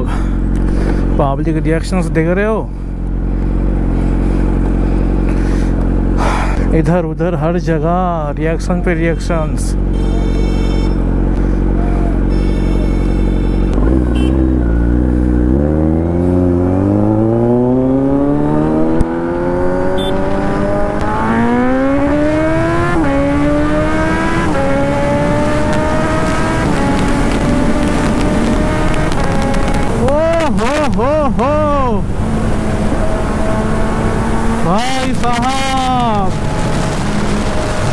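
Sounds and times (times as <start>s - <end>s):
motorcycle engine accelerating: 0.0s - 37.9s
quickshifter upshifts: 8.6s - 37.9s
wind noise: 18.7s - 34.6s.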